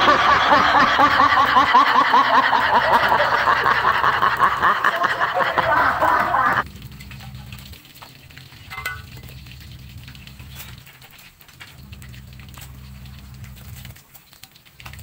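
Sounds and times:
rapid high giggles: 0.0s - 6.6s.

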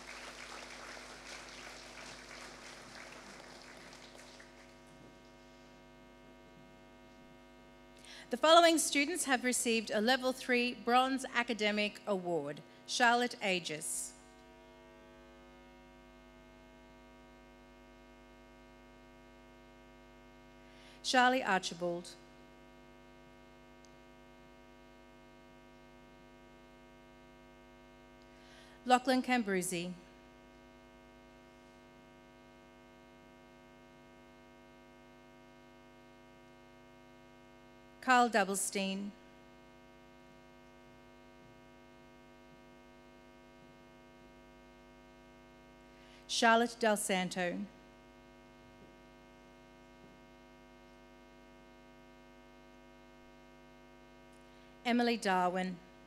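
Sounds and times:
audience applauding: 0.0s - 4.9s
electrical hum: 0.0s - 56.0s.

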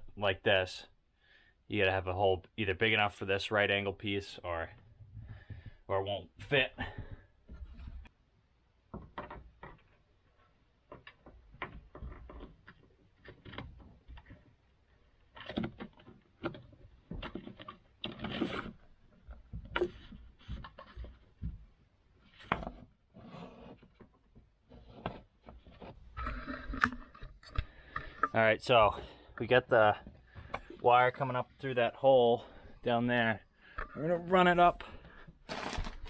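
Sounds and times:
cable scraping through wood: 17.3s - 18.9s, 22.4s - 28.4s.

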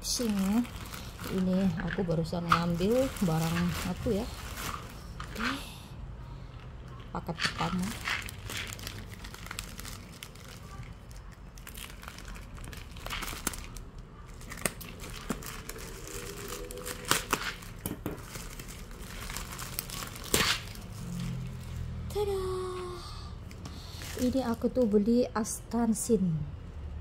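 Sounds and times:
plastic mailer crinkling: 0.0s - 5.6s, 7.4s - 21.8s, 23.8s - 25.0s
plastic ripping: 0.0s - 5.6s, 7.3s - 21.9s, 23.8s - 25.0s.

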